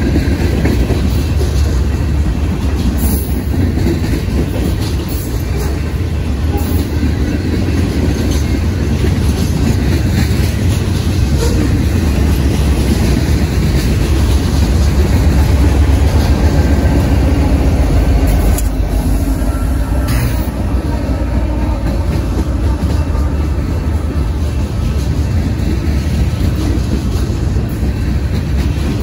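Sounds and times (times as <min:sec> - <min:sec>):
diesel locomotives passing: 0:00.0 - 0:29.0
freight train rumbling over rails: 0:00.0 - 0:29.0
train clanks: 0:00.0 - 0:29.0.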